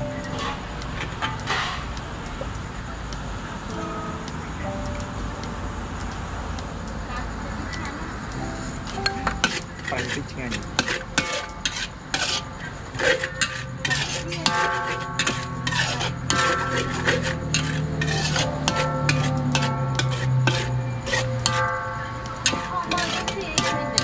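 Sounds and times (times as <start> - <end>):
light sizzle: 0.0 - 24.0
metal spatula scraping a wok: 0.2 - 2.0, 9.3 - 10.2, 10.8 - 21.6, 22.4 - 24.0.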